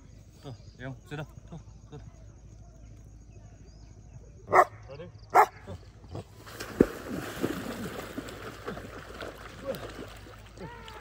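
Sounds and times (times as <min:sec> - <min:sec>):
dog barking: 0:04.5 - 0:05.6
water splashing as person wades: 0:06.3 - 0:11.0.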